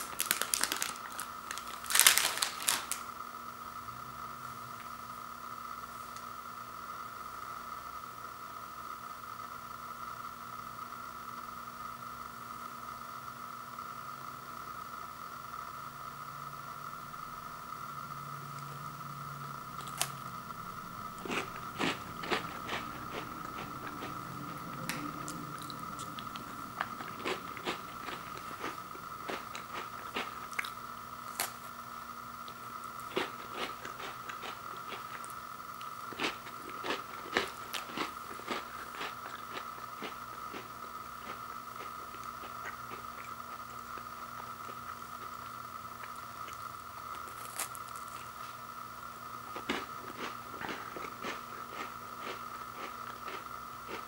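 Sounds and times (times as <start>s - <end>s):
person crunching crackers: 0.0s - 3.1s, 19.6s - 31.8s, 32.4s - 45.3s, 46.0s - 48.5s, 49.5s - 54.0s
faint hum: 0.0s - 54.0s.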